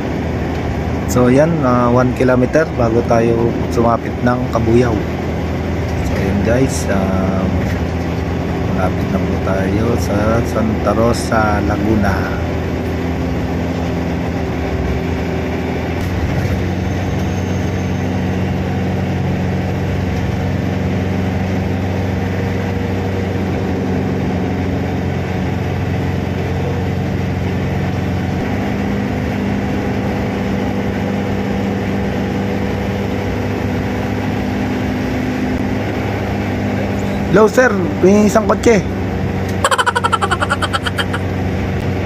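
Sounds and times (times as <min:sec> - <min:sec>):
car engine hum: 0:00.0 - 0:17.2
road noise: 0:00.0 - 0:42.0.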